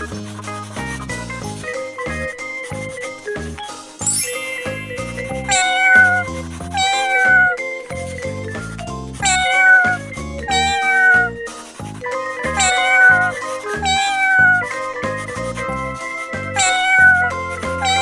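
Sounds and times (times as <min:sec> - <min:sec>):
light background music: 0:00.0 - 0:18.0
cat meowing: 0:05.1 - 0:07.6, 0:09.2 - 0:11.4, 0:12.4 - 0:14.8, 0:16.5 - 0:18.0.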